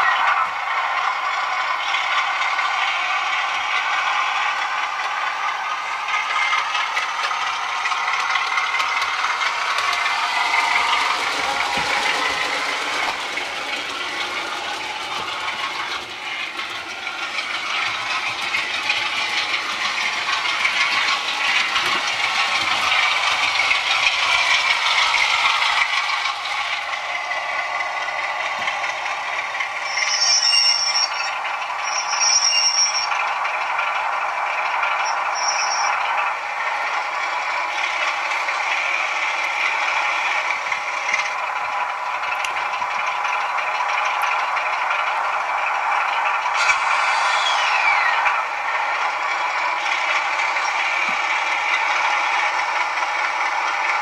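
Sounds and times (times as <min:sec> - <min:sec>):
diesel engine sound from small speaker: 0:00.0 - 0:54.0
model train wheels rattling: 0:00.7 - 0:54.0
high-pitched squeaks: 0:29.8 - 0:33.2, 0:35.0 - 0:36.0.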